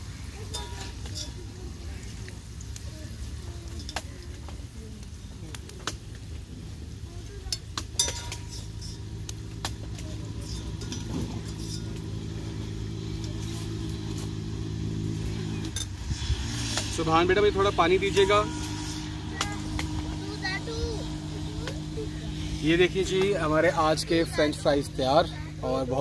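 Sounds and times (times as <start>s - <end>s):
fries sizzling in hot oil: 0.0s - 26.0s
vehicle engine humming: 0.0s - 26.0s
metal utensil clinking on pan: 0.4s - 1.4s, 7.5s - 9.1s, 10.4s - 12.1s.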